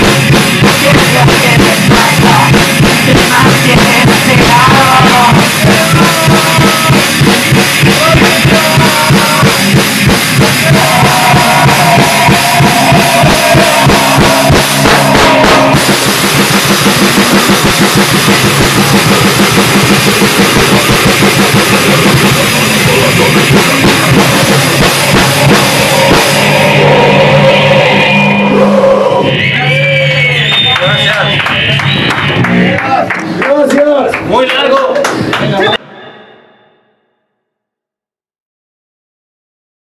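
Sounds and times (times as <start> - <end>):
fast drums and cymbals: 0.0 - 29.2
distorted guitar: 0.0 - 37.1
higher melodic line: 4.0 - 33.1.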